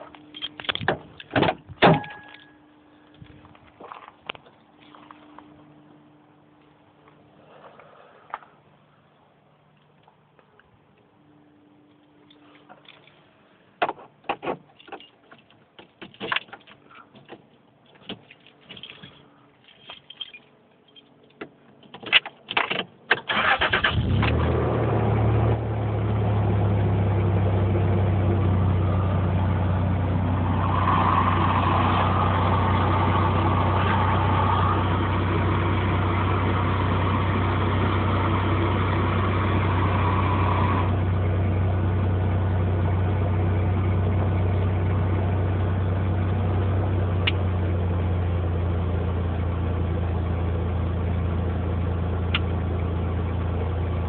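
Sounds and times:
engine cranking and idling: 0:22.4 - 0:54.0.

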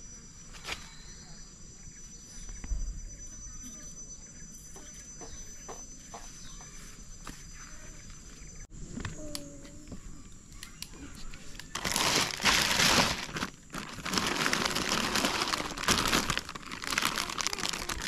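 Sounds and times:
plastic bags crinkling: 0:11.6 - 0:18.0.

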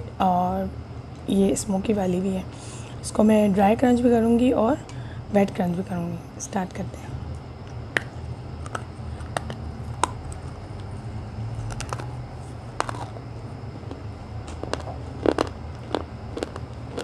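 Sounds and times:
steady low hum: 0:00.0 - 0:17.0
pencil cracking and crunching: 0:11.6 - 0:12.2, 0:12.8 - 0:13.2, 0:13.9 - 0:17.0.

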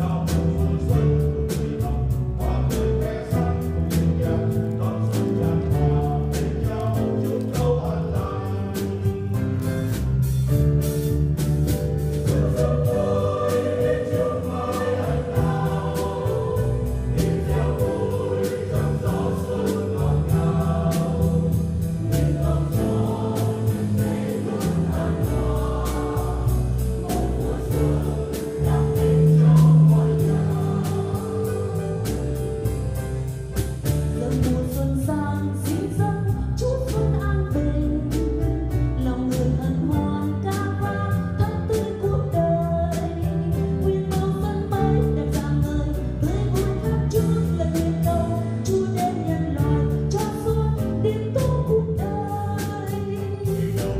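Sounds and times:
choir singing a hymn: 0:00.0 - 0:09.4, 0:11.9 - 0:33.3, 0:44.6 - 0:53.9
drums beating: 0:00.0 - 0:34.8.

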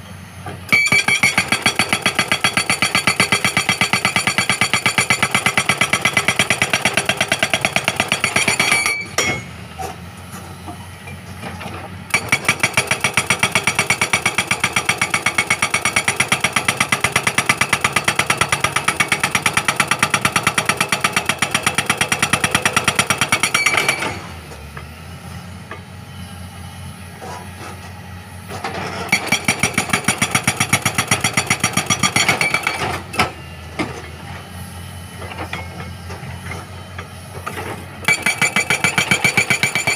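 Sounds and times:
hydraulic breaker hammering rock: 0:00.6 - 0:09.9, 0:11.6 - 0:24.4, 0:28.6 - 0:34.0, 0:37.4 - 0:39.9
diesel engine running: 0:23.8 - 0:30.8.

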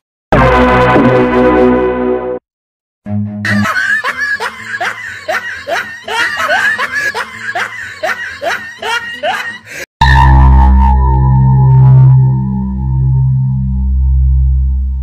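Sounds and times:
person laughing: 0:03.5 - 0:09.9
low steady drone: 0:10.5 - 0:15.0.

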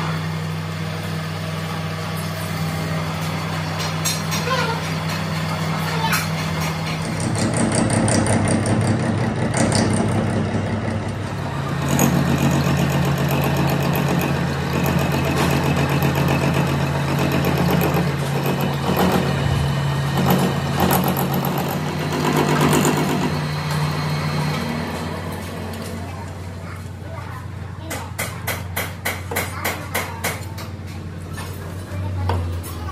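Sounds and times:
metal lathe motor hum: 0:06.7 - 0:26.0.

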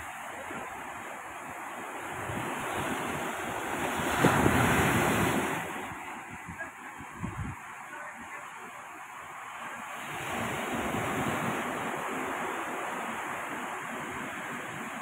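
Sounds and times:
surf breaking on shore: 0:00.0 - 0:15.0
wind buffeting microphone: 0:01.5 - 0:07.7.

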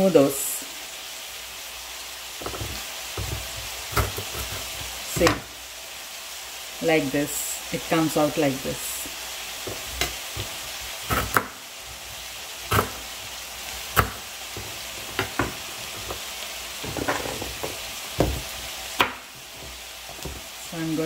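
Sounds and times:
onions sizzling in a pan: 0:00.0 - 0:21.0
knife chopping on cutting board: 0:02.4 - 0:05.4, 0:09.7 - 0:11.6, 0:12.7 - 0:13.1, 0:13.9 - 0:16.2, 0:16.9 - 0:20.4.

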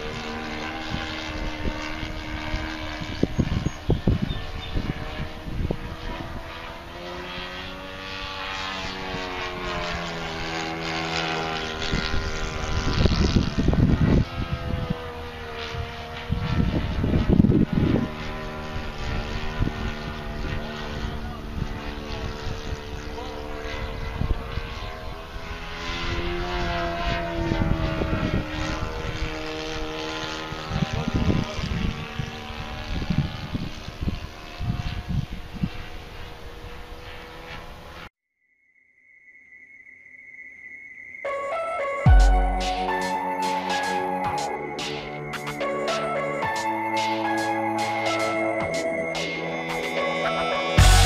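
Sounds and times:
wind rumbling on microphone: 0:00.0 - 0:37.8
model plane engine droning: 0:00.0 - 0:38.1, 0:41.2 - 0:51.0.

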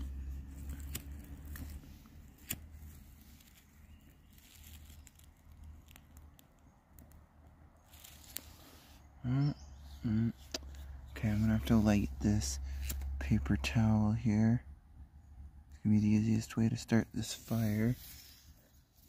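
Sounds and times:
rustling among dry twigs: 0:00.0 - 0:07.2, 0:07.8 - 0:09.1.

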